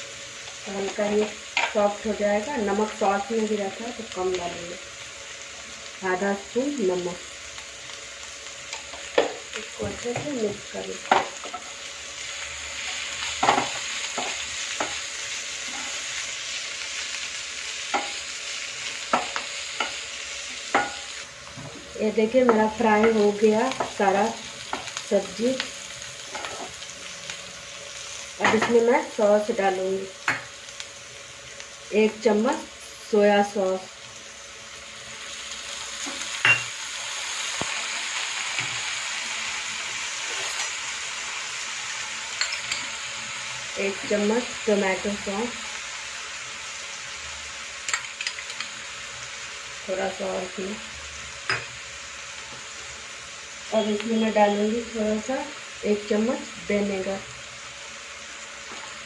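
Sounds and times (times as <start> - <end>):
vegetables sizzling in a pan: 0.0 - 59.0
wooden spatula scraping a pan: 15.6 - 16.0.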